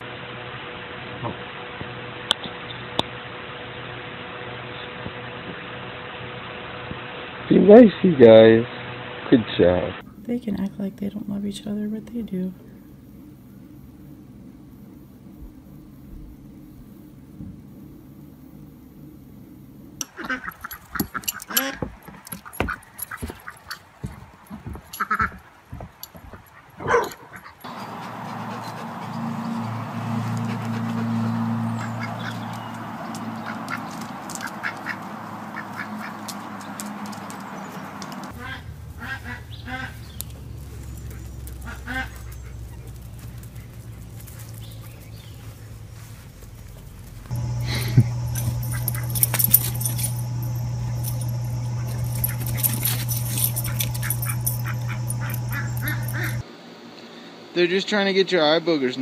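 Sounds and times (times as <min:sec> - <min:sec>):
low background hum: 0:10.0 - 0:57.6
duck quacking: 0:20.0 - 0:20.8, 0:26.8 - 0:32.6, 0:33.4 - 0:36.3, 0:38.3 - 0:40.0, 0:41.6 - 0:42.9, 0:54.7 - 0:56.4
dogs yipping and barking: 0:20.0 - 0:46.1, 0:47.0 - 0:56.4.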